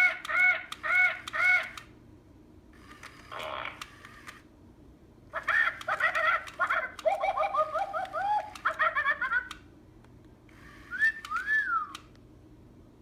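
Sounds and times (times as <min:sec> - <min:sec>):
robot parrot toy bird calls: 0:00.0 - 0:01.9, 0:05.4 - 0:09.5.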